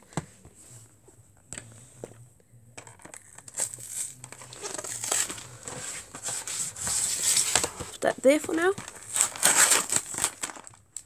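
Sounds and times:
plastic packaging crinkling: 3.2 - 11.0.

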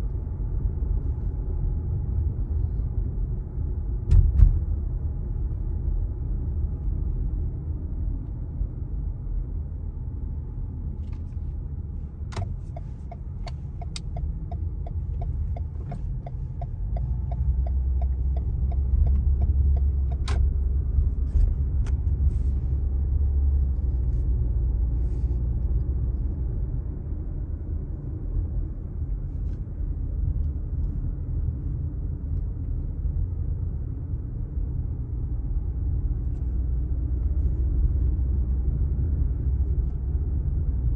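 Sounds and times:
car engine and tyres rumbling: 0.0 - 40.9
regular ticking: 12.4 - 20.3.

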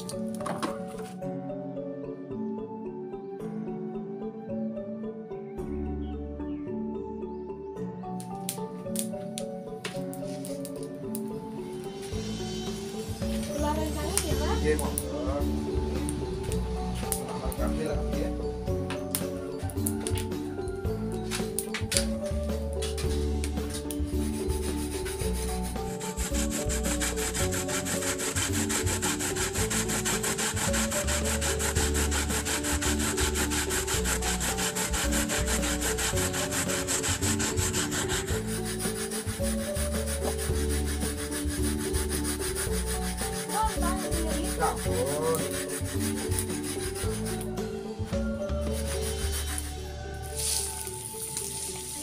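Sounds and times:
coconut rasping on metal grater: 24.2 - 47.5, 48.6 - 49.9.

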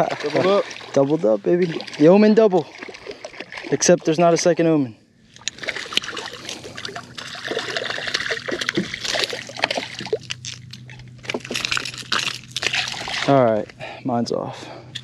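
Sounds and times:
fish splashing in water: 0.0 - 3.9, 5.4 - 10.7, 11.3 - 13.4
faint low hum: 0.0 - 15.0
water dripping: 5.4 - 10.7.

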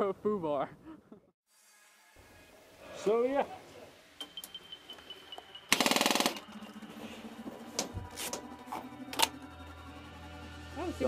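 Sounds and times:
airsoft gun full-auto burst: 5.7 - 6.6.

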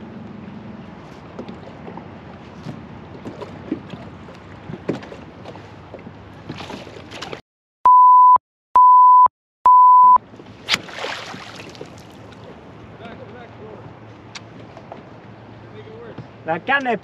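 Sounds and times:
water lapping: 0.4 - 7.4, 10.4 - 13.0
censor bleeps: 7.9 - 10.2.

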